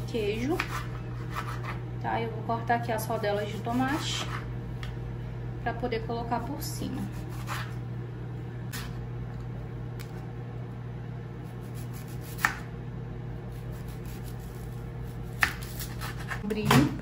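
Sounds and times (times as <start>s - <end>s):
microwave oven humming: 0.0s - 17.0s
knife slicing vegetables: 0.2s - 1.8s, 7.0s - 7.8s, 8.7s - 9.0s, 11.6s - 12.7s, 13.6s - 16.6s.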